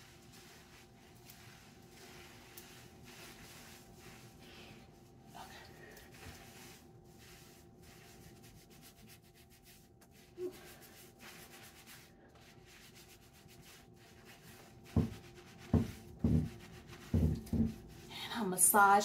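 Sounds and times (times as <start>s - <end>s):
fingertips scrubbing wet hair: 0.0s - 18.1s.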